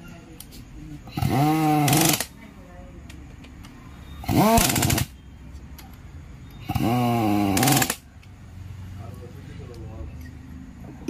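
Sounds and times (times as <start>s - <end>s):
impact wrench bursts: 1.1s - 2.4s, 4.2s - 5.2s, 6.6s - 8.1s.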